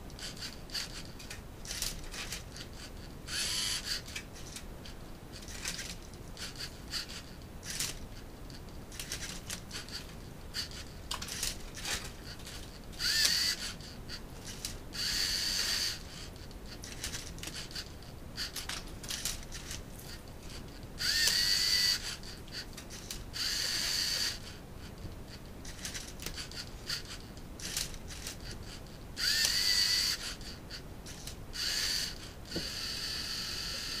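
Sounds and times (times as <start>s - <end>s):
servo motors whirring: 0.2s - 4.6s, 10.6s - 16.2s, 16.8s - 19.8s, 21.0s - 24.6s, 25.7s - 34.0s.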